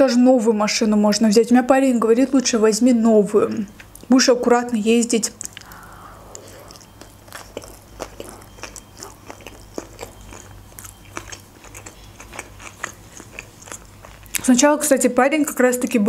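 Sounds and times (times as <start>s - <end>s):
chewing with wet clicks: 3.5s - 4.1s, 5.2s - 14.5s.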